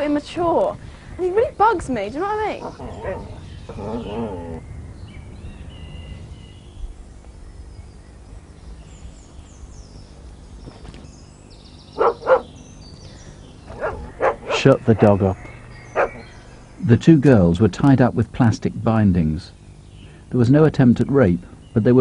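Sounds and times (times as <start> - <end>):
faint bird chirps: 2.6 - 17.0
dog barking: 12.0 - 12.6, 13.7 - 15.2, 15.9 - 16.3.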